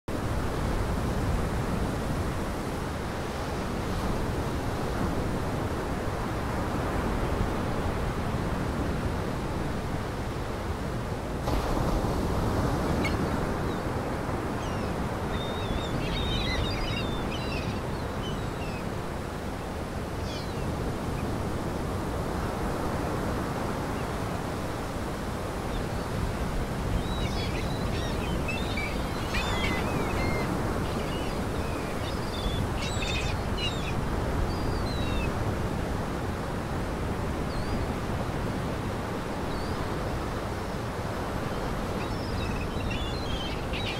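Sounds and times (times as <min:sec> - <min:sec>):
waves washing against shore: 0:00.1 - 0:43.9
high chirping bird calls: 0:27.0 - 0:34.0.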